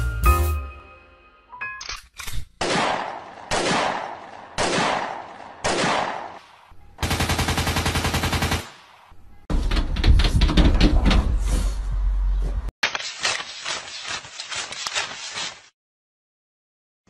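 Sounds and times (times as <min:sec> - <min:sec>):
loud gunshots: 0:02.6 - 0:06.4
machine-gun burst: 0:07.0 - 0:08.7.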